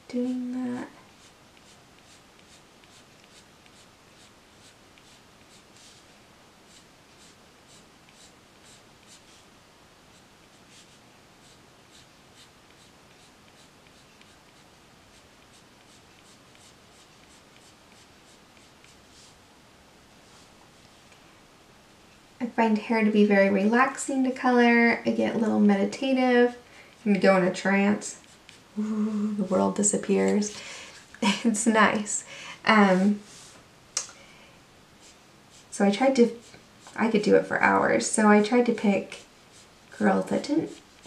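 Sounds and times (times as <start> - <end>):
colored pencil scratching paper: 0.2 - 6.1, 6.7 - 9.5, 10.1 - 19.4, 26.9 - 28.7, 35.0 - 37.8, 38.4 - 41.0.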